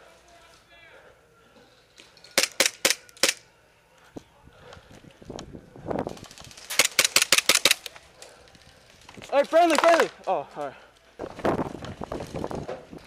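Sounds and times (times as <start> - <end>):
airsoft gun shots: 6.7 - 7.8.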